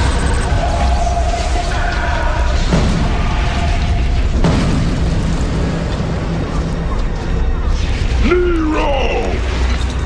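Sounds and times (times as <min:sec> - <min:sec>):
film music: 0:00.0 - 0:10.0
booming hit: 0:02.6 - 0:06.6.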